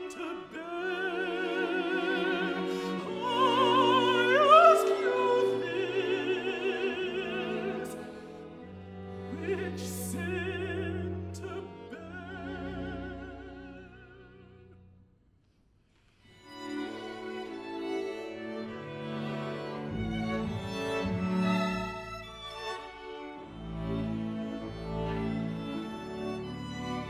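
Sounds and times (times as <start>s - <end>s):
countertenor singing with vibrato: 0.0s - 8.3s
bowed strings: 0.0s - 15.0s, 16.2s - 27.0s.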